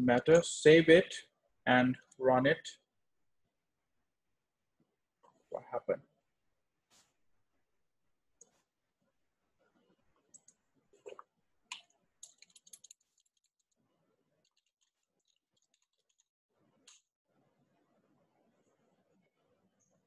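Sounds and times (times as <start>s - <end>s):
faint keyboard and mouse clicks: 10.2s - 13.8s, 14.4s - 17.1s.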